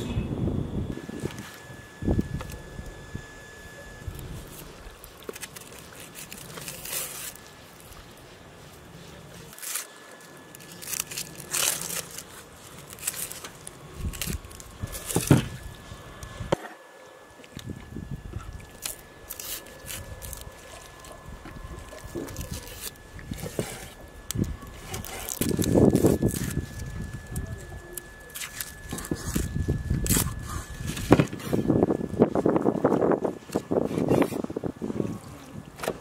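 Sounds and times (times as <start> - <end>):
onion skin crackling: 4.0 - 16.3, 18.7 - 31.4.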